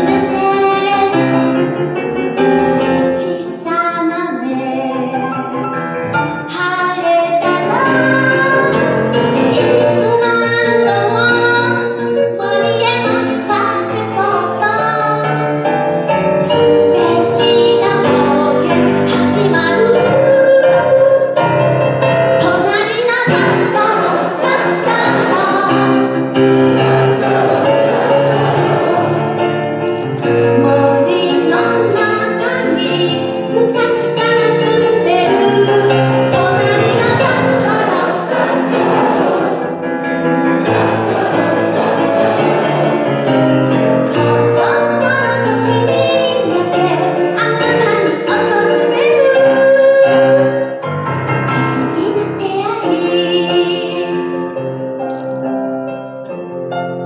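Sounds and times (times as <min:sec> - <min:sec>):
woman singing: 0:00.0 - 0:01.5, 0:03.2 - 0:05.4, 0:06.4 - 0:15.4, 0:16.4 - 0:21.4, 0:22.4 - 0:26.1, 0:30.6 - 0:38.3, 0:44.1 - 0:50.6, 0:51.6 - 0:54.2
grand piano: 0:00.0 - 0:57.0.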